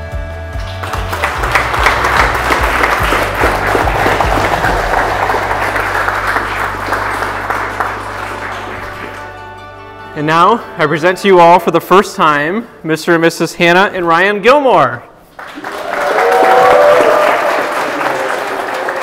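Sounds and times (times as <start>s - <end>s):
background music: 0.0s - 19.0s
crowd applauding: 0.6s - 9.5s, 15.3s - 19.0s.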